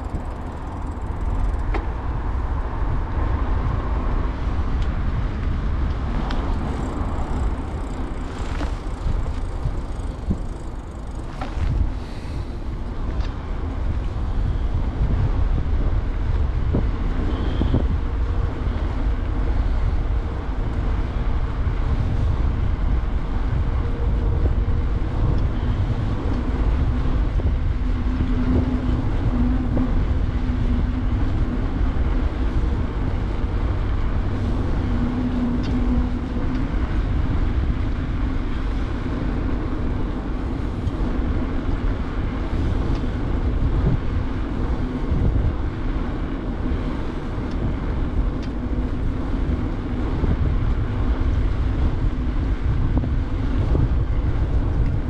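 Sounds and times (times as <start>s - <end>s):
bicycle tyre noise: 0.0s - 55.0s
wind buffeting microphone: 0.0s - 55.0s.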